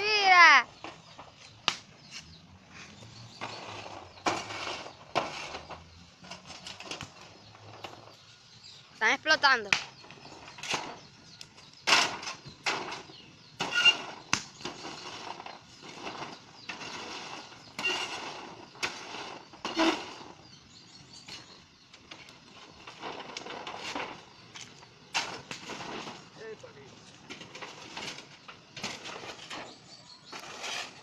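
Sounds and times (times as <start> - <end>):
tool scraping on metal: 3.4 - 7.0, 14.8 - 20.3, 27.4 - 31.0.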